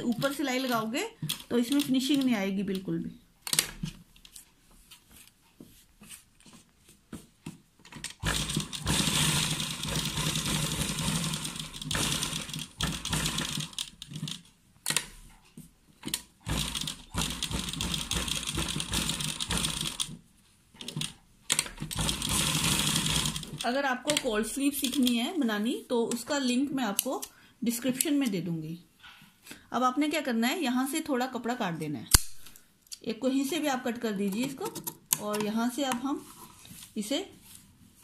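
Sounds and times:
sewing machine clatter: 0:07.9 - 0:14.5, 0:16.0 - 0:20.2, 0:20.8 - 0:24.3.

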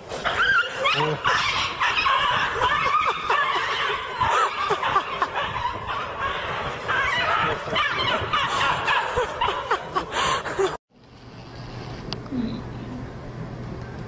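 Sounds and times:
many birds calling: 0:00.4 - 0:10.7.

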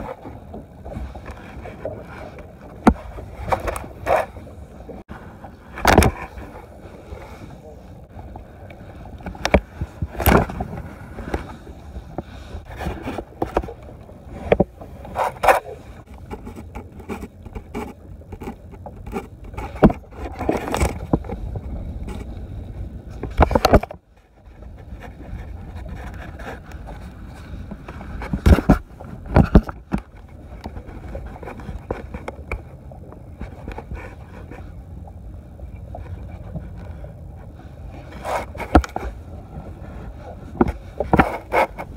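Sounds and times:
gear knocking and scraping on boat: 0:00.0 - 0:41.9.

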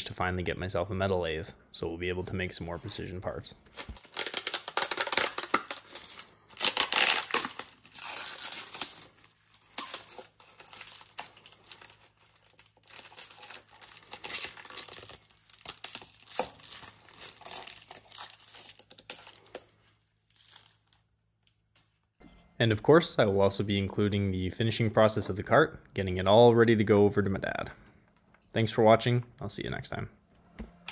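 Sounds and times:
plastic film crinkling and tearing: 0:03.6 - 0:21.7.

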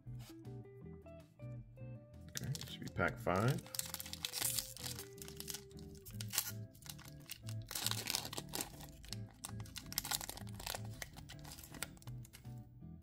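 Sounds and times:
background music with steady beat: 0:00.0 - 0:13.0
foil wrapper crinkling: 0:02.3 - 0:12.4.

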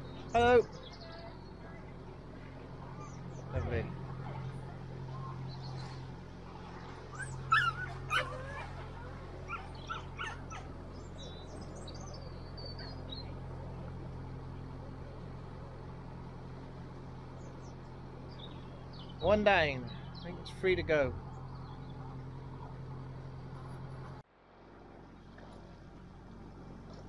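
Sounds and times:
diesel boat engine running: 0:00.0 - 0:27.0
sharp animal calls: 0:07.1 - 0:11.9.

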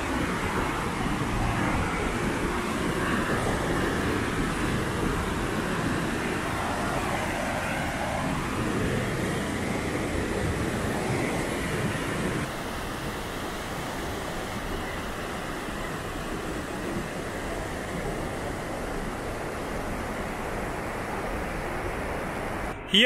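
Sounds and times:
waterfall roaring: 0:00.0 - 0:23.0.

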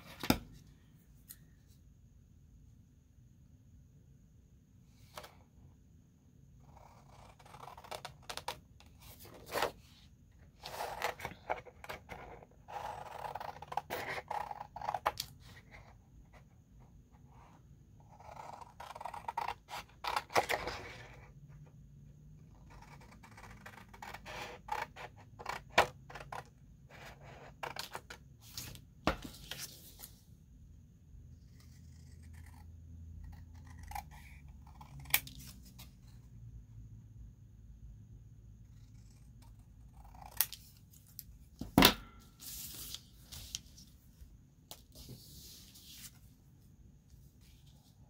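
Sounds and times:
paper rustling and sliding: 0:42.3 - 0:44.0, 0:44.8 - 0:46.3.

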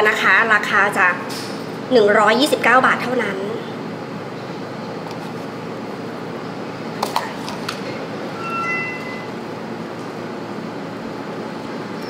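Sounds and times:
steady room hum: 0:00.0 - 0:12.0
short high tones: 0:08.3 - 0:09.6.

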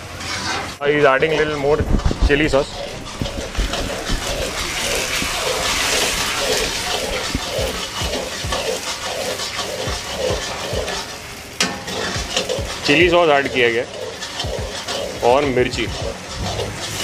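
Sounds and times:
spatula scraping wok: 0:00.0 - 0:17.0
gas flame hiss: 0:01.4 - 0:17.0
sharp metal clank: 0:11.6 - 0:12.5.

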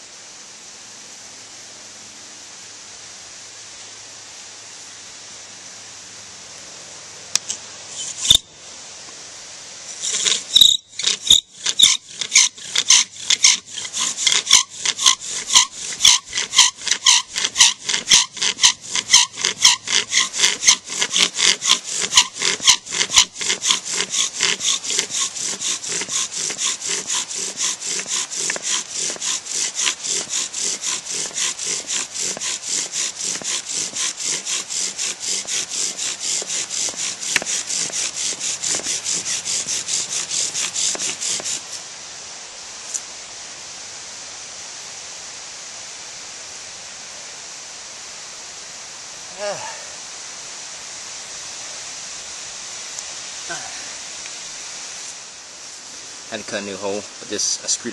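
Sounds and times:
bow drill rasping: 0:08.0 - 0:08.4, 0:10.0 - 0:41.8.

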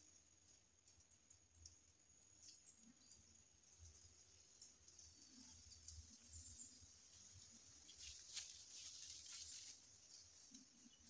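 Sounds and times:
leaves and twigs rustling: 0:02.5 - 0:11.0.

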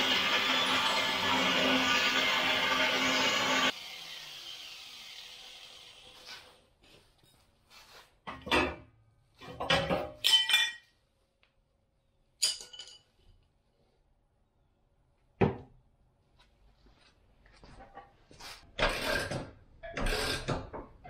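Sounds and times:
metal tools clinking and clanking: 0:09.4 - 0:11.0, 0:12.4 - 0:13.2.

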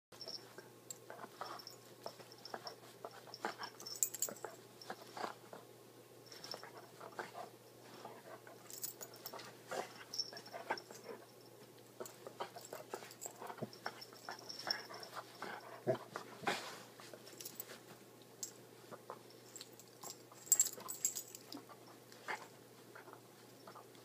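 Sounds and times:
rustling bedding: 0:06.2 - 0:23.8.

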